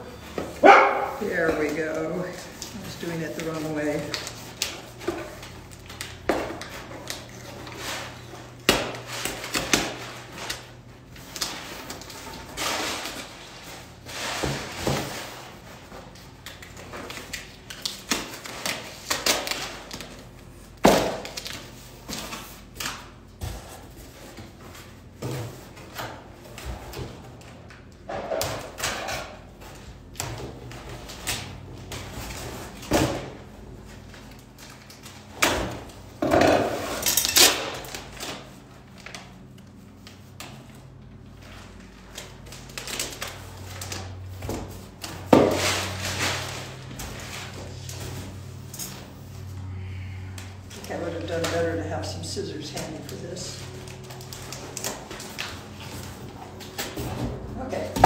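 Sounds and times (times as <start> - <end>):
packing tape tearing: 2.0 - 23.1, 36.6 - 49.0, 52.7 - 57.0
cardboard rustling and scraping: 38.0 - 49.6.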